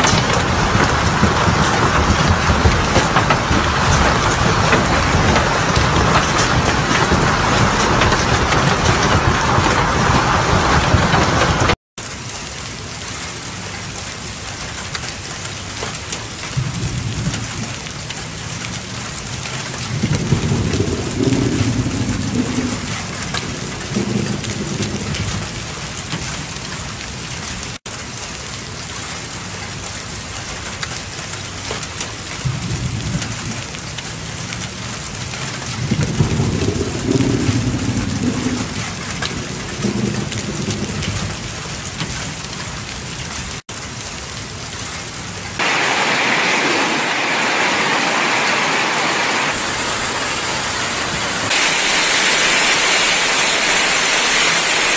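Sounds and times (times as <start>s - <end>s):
low rumbles: 0.0s - 11.8s, 16.4s - 27.8s, 32.2s - 43.6s
hail and rain on pavement: 0.0s - 54.9s.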